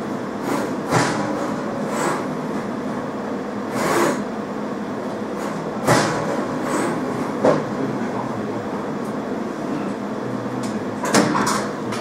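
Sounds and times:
short loud machine bursts: 3.7 - 4.3.

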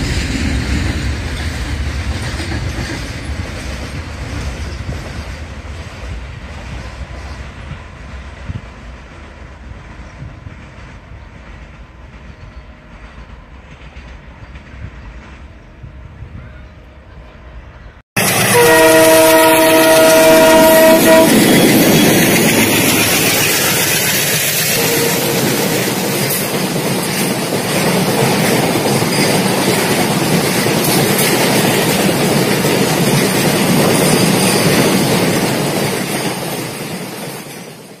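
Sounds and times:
train rumbling and wheel clatter: 0.0 - 38.0
train horn: 16.0 - 22.4, 24.7 - 26.1.

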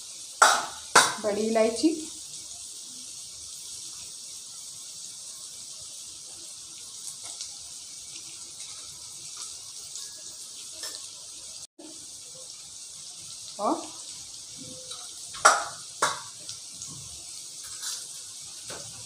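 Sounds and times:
food sizzling in hot oil: 0.0 - 19.0
oil popping: 15.3 - 16.4.

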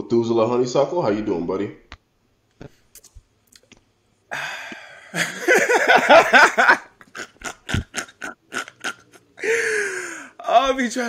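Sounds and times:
men laughing hard: 4.3 - 10.3.

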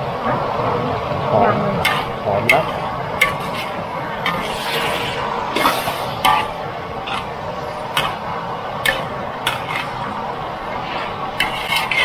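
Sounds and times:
metal spatula scraping a wok: 11.4 - 12.0.

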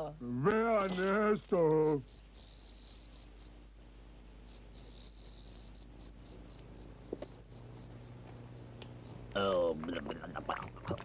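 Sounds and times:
cricket chirping: 1.7 - 3.6, 4.4 - 9.3.

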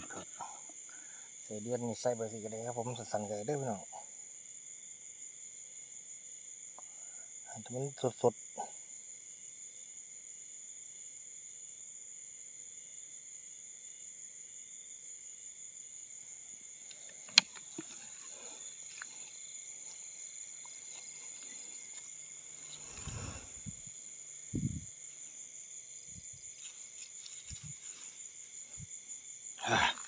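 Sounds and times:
night insects chirping: 0.0 - 30.0
rustling through tall grass: 20.8 - 23.8, 26.4 - 29.0.

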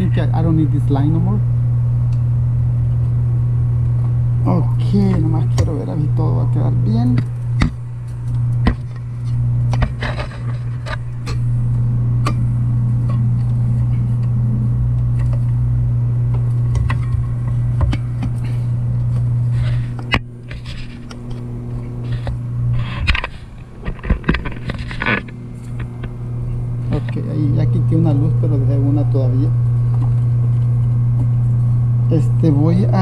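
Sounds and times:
low electrical hum: 0.0 - 33.0
handling clicks and scrapes: 7.6 - 11.4, 16.8 - 26.2.

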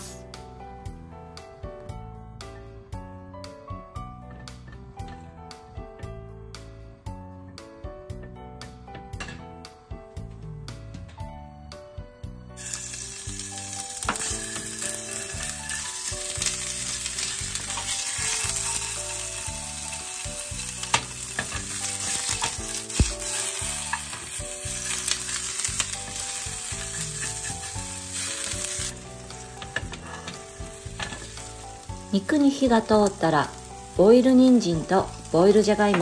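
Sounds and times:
chicken sizzling in frying pan: 12.6 - 36.0
spatula stirring in pan: 14.1 - 31.6.

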